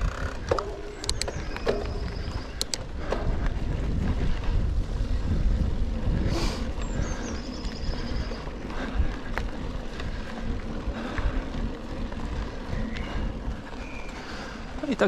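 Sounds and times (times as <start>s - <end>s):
bike tyre and frame rattle: 0.0s - 15.0s
wind buffeting microphone: 0.0s - 15.0s.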